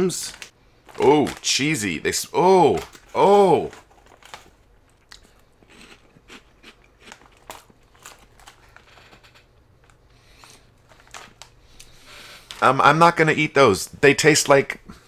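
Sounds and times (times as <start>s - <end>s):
foil snack bag crinkling: 0.1s - 12.8s
crunching of crackers being chewed: 2.7s - 12.6s.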